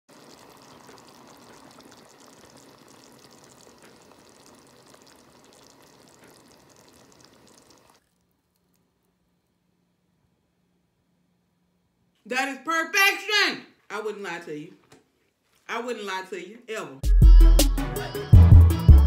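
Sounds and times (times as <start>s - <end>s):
dip sizzling and bubbling: 0.0s - 9.2s.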